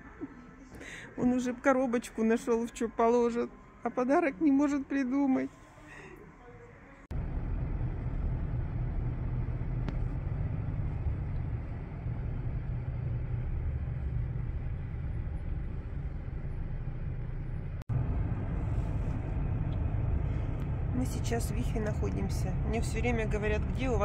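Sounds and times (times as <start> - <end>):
car road and engine rumble: 7.1 - 24.0.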